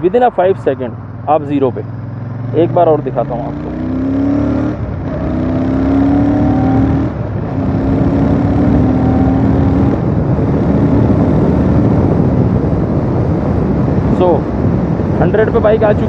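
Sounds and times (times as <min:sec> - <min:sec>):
motorcycle engine accelerating: 0:00.0 - 0:16.0.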